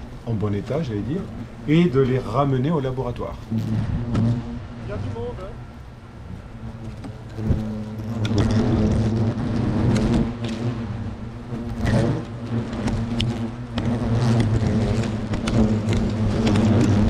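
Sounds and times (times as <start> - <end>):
hornets buzzing: 0.0 - 17.0
hornets tapping on camera: 6.7 - 10.8, 11.5 - 17.0.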